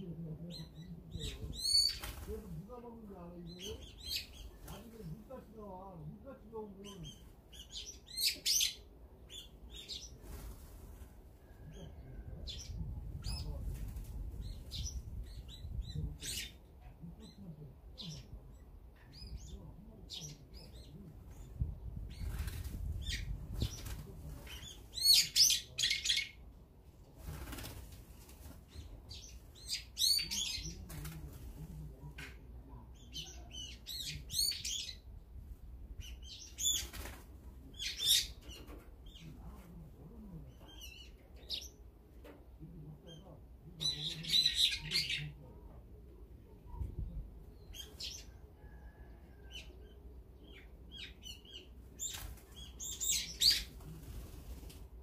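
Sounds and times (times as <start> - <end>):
small birds chirping: 0.0 - 10.6, 11.4 - 26.5, 27.4 - 35.3, 35.9 - 54.8
wings fluttering: 1.3 - 2.7, 22.1 - 25.0, 27.2 - 29.6, 36.5 - 37.6, 51.8 - 55.0.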